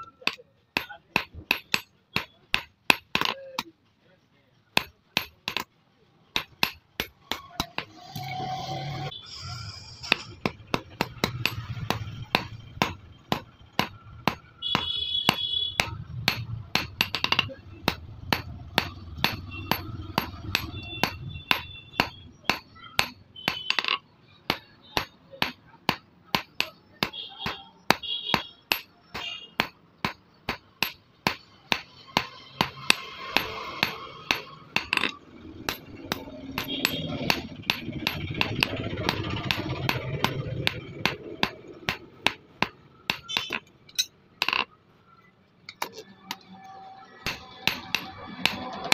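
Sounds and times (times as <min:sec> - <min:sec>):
hammer striking hot steel on anvil: 0:00.1 - 0:03.7, 0:04.8 - 0:05.7, 0:10.0 - 0:44.7, 0:45.7 - 0:48.9.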